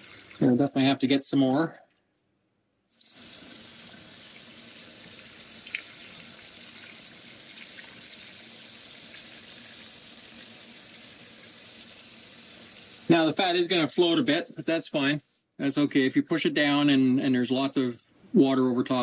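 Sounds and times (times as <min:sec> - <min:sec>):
water pouring into metal pot: 0:00.0 - 0:00.7, 0:02.9 - 0:14.6.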